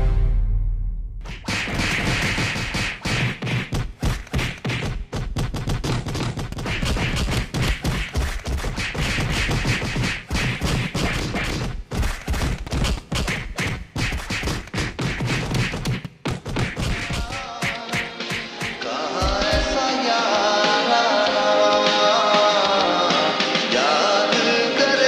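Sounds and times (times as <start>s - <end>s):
punch and kick thuds: 1.2s - 18.4s.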